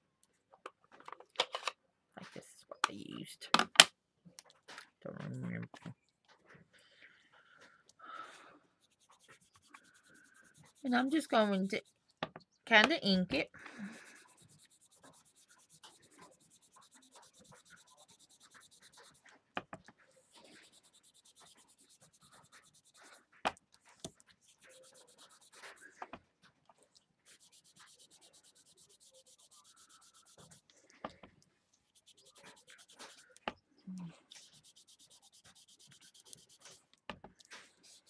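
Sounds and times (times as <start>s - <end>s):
cotton ball rubbing on cardstock: 8.7s - 12.0s, 12.7s - 26.2s, 26.9s - 31.2s, 31.8s - 33.6s, 34.2s - 38.0s.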